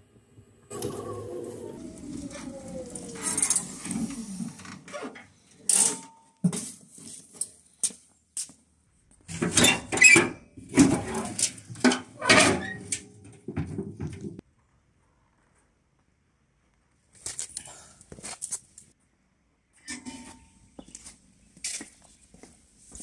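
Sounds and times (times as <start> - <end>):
knocks and clanks on metal bed: 9.3 - 14.4.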